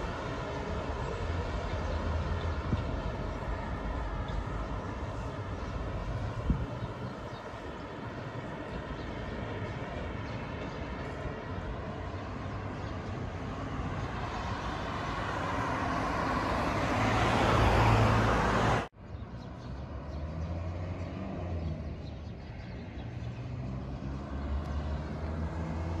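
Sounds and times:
steady traffic hum: 0:00.0 - 0:26.0
car rushing past: 0:14.6 - 0:18.9, 0:23.4 - 0:26.0.

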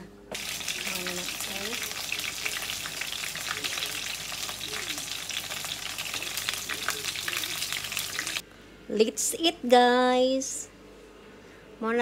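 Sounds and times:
chicken sizzling in hot oil: 0:00.4 - 0:08.4.

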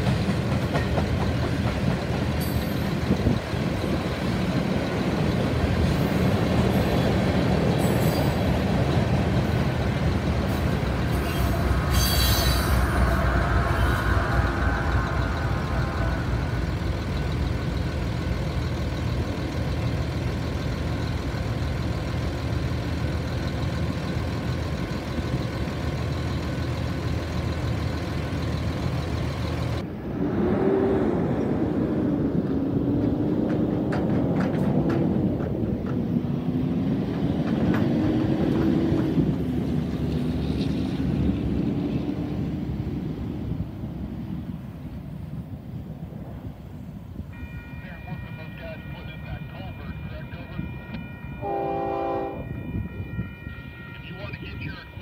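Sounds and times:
truck engine: 0:00.0 - 0:47.3
heavy traffic rumble: 0:00.0 - 0:55.0
crossing bell ringing: 0:08.1 - 0:19.6, 0:47.2 - 0:55.0.

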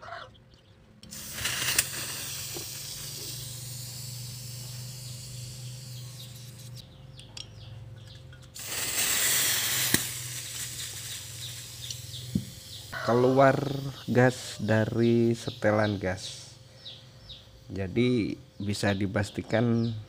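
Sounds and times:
butane gas hissing: 0:01.0 - 0:06.8, 0:08.6 - 0:18.2.

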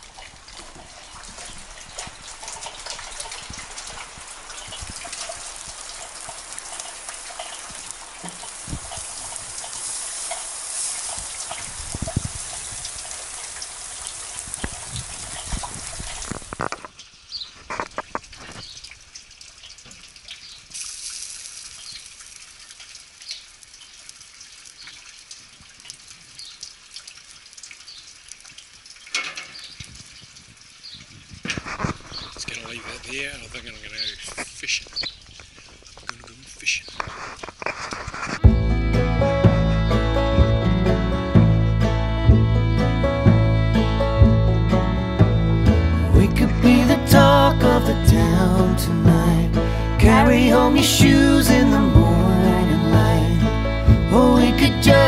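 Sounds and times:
rain hissing: 0:00.0 - 0:55.0.

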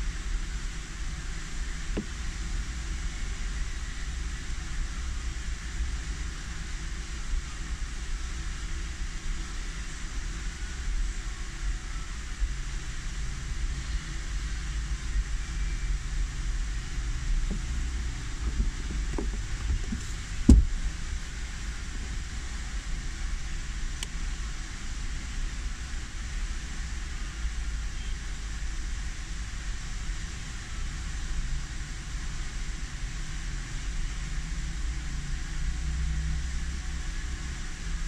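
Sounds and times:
light knocks: 0:18.4 - 0:20.8.

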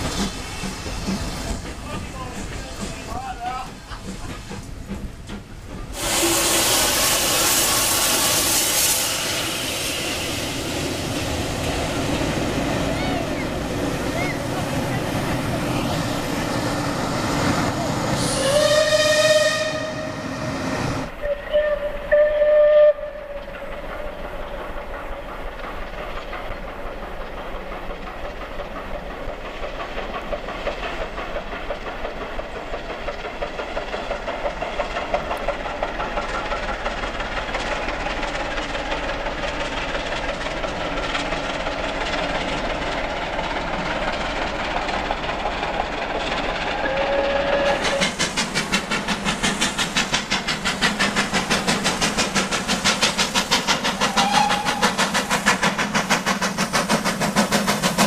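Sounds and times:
locomotive exhaust chuffs: 0:00.0 - 0:20.5, 0:21.1 - 0:58.0
steam locomotive whistle: 0:06.0 - 0:10.4, 0:18.2 - 0:23.6, 0:46.8 - 0:48.1, 0:54.0 - 0:55.1.

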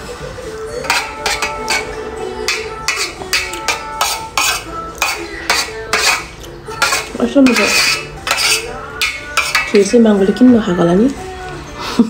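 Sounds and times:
metal spoon scraping metal plate: 0:00.8 - 0:10.2.

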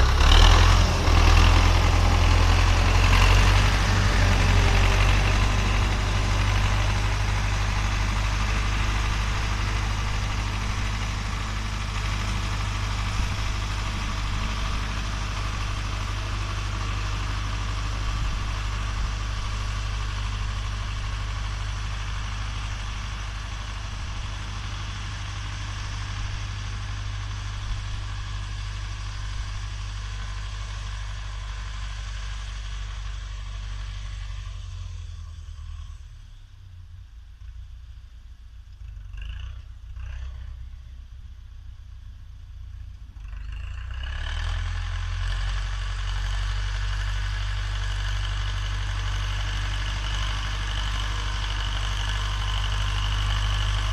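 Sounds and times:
tractor diesel engine droning: 0:00.0 - 0:53.9.

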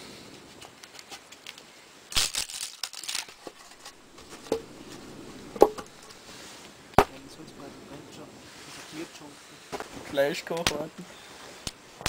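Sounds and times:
wood splitting and splintering: 0:02.1 - 0:06.2, 0:07.0 - 0:07.6
sharp wooden knocks: 0:03.7 - 0:06.2, 0:07.0 - 0:07.6.

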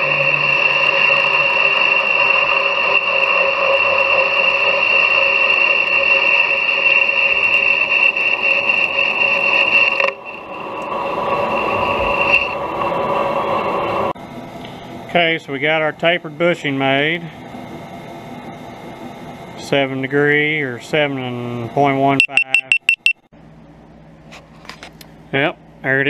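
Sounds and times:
metal lathe whining: 0:00.0 - 0:14.2.

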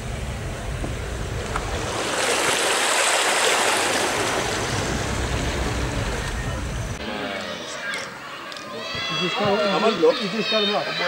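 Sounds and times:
low rumble of car: 0:00.0 - 0:02.2, 0:03.7 - 0:07.0
floodwater splashing against car: 0:00.0 - 0:07.0.

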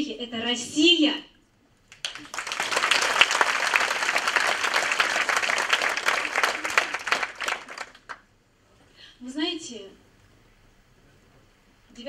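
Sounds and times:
audience applauding: 0:01.9 - 0:08.2.

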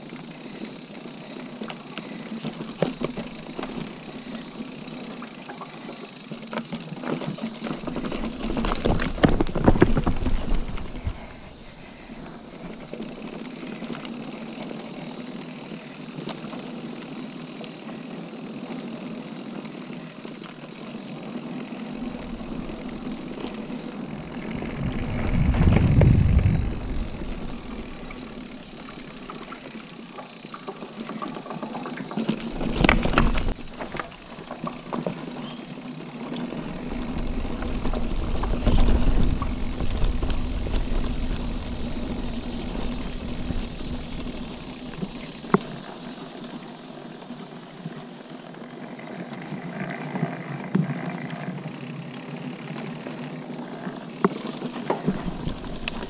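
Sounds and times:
bike tyres rolling and rattling: 0:00.0 - 0:56.0
wind rumble on microphone: 0:24.1 - 0:29.2, 0:36.9 - 0:44.9.

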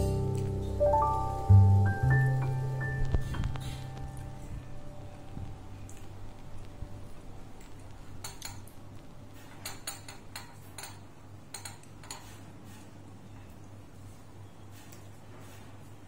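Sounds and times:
steady low hum: 0:00.0 - 0:09.3
cutlery clinking on ceramic plate: 0:09.5 - 0:12.4.

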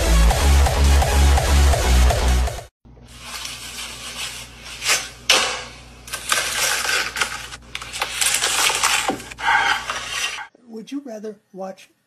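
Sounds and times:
knife crunching through crisp food: 0:06.1 - 0:10.5.

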